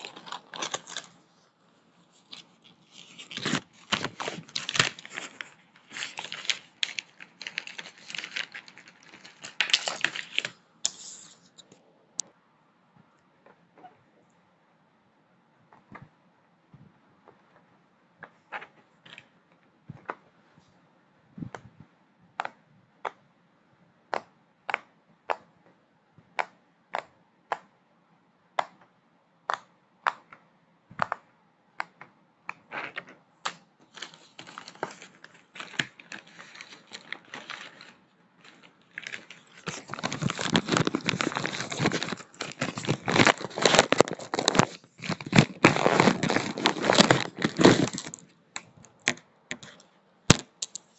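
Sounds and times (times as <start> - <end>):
packaging crinkling and rustling: 0.0 - 1.2, 2.1 - 11.7, 32.7 - 50.9.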